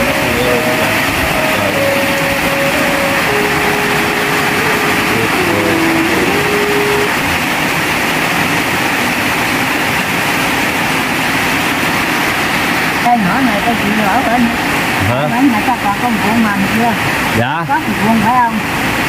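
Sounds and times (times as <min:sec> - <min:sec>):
faint held tone shifting pitch: 0:00.0 - 0:07.5
steady rain falling: 0:00.0 - 0:19.0.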